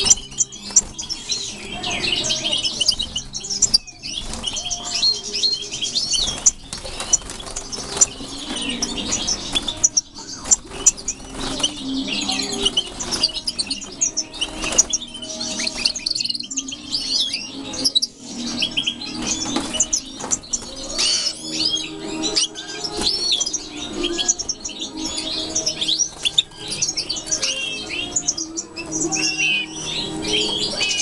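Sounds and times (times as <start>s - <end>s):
wings fluttering: 0.0s - 17.0s
finches twittering: 0.0s - 31.0s.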